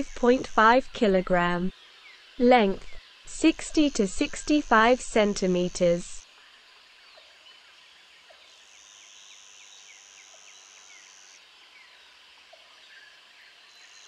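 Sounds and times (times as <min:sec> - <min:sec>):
high steady buzz: 0:00.0 - 0:01.8, 0:02.4 - 0:06.5
soft hiss: 0:02.4 - 0:06.2.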